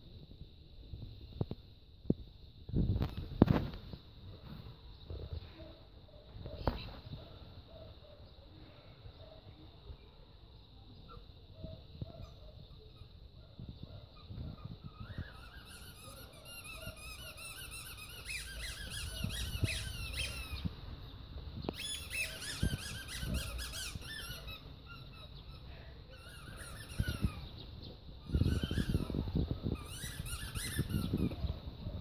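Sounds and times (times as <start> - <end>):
squeaky dog toy squeaking: 15.0 - 20.6, 21.8 - 25.3, 26.1 - 27.4, 28.2 - 29.2, 29.8 - 31.4.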